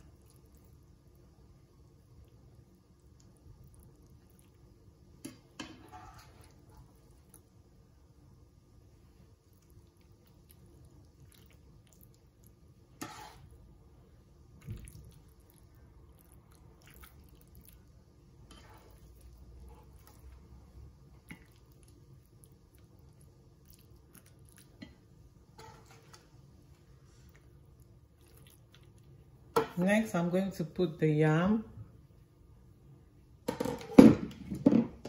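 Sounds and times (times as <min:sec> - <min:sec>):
low background hum: 0:00.0 - 0:35.0
spatula scraping frying pan: 0:05.6 - 0:06.8, 0:13.0 - 0:13.5, 0:18.4 - 0:20.0, 0:25.6 - 0:26.2.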